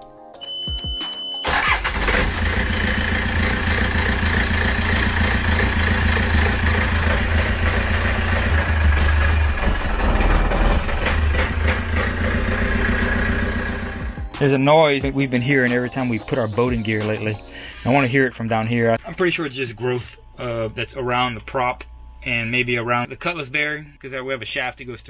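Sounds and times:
diesel engine starting and idling: 1.4s - 14.2s.

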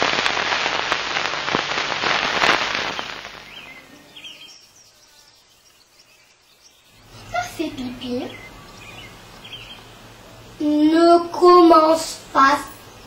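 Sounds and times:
loud crackling hiss with ticks: 0.0s - 13.0s
faint bird chirps: 2.8s - 10.0s.

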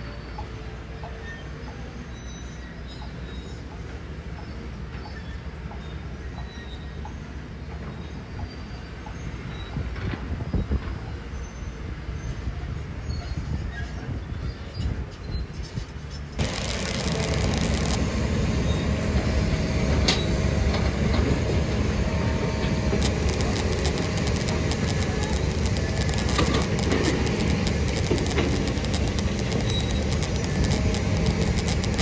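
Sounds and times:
sharp clicks and knocks: 16.4s - 18.4s, 22.6s - 32.0s
diesel machinery running: 16.4s - 32.0s.

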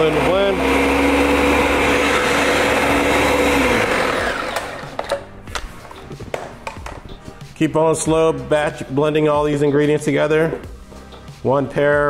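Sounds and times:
blender running: 0.0s - 5.3s.

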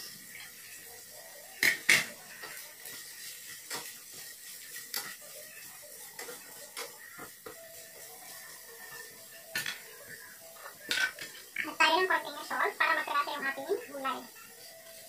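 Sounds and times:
utensil clacking against frying pan: 1.6s - 5.2s, 6.1s - 8.1s.

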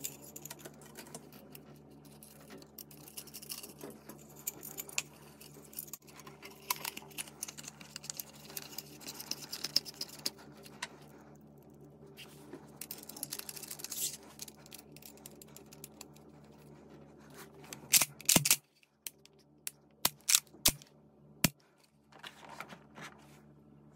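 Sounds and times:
rubbing and scraping of gun parts: 0.0s - 11.2s, 12.2s - 18.9s.

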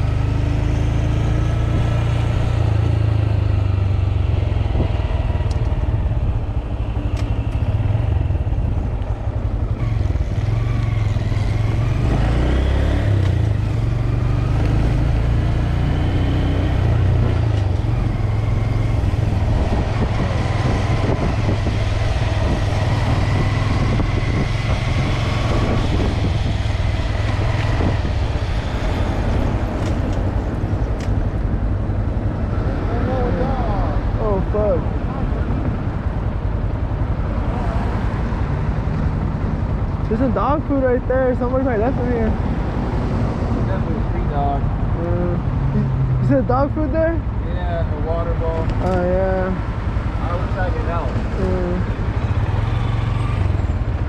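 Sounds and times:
wind rumble on microphone: 1.2s - 15.2s, 16.7s - 47.4s
small motorcycle engines: 4.7s - 14.8s, 43.6s - 54.0s.

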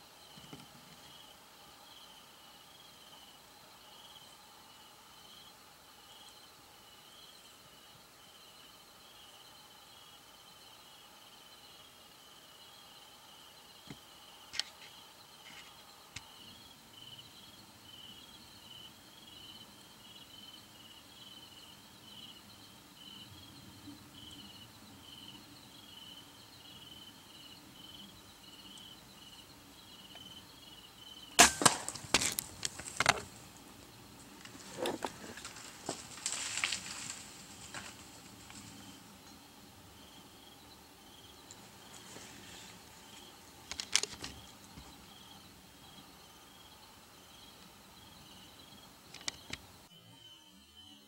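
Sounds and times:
insect chirping: 0.0s - 51.0s
crossbow shot crack: 31.4s - 33.2s
deer crashing through brush: 31.4s - 33.3s, 35.2s - 38.8s.

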